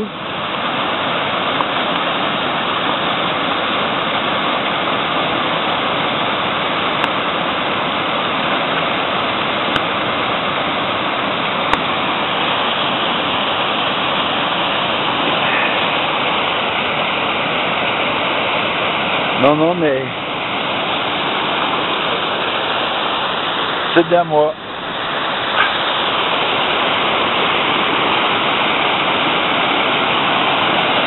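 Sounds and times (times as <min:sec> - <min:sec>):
stream rushing over boulders: 0:00.0 - 0:31.0.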